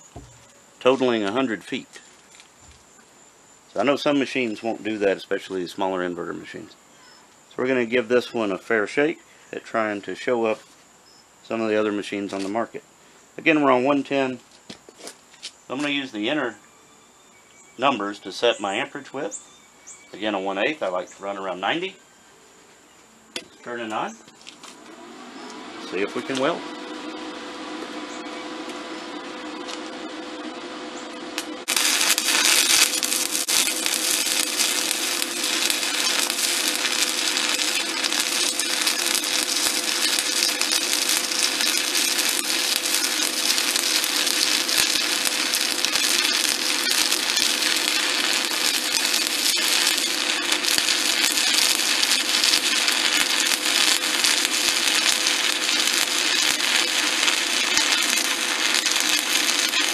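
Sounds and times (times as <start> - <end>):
welding arc crackling: 0.0 - 3.0, 23.7 - 59.9
low steady hum: 23.3 - 56.0.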